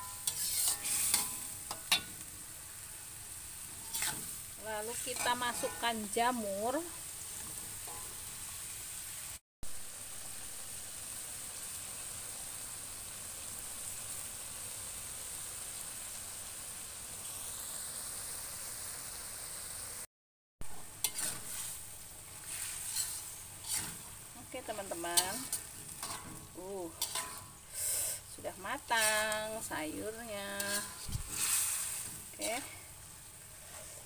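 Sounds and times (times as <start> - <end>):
metal spatula scraping wok: 0.0 - 2.3, 3.5 - 8.6, 21.0 - 32.9, 33.5 - 34.0
stir-fry sizzling in wok: 0.0 - 34.0.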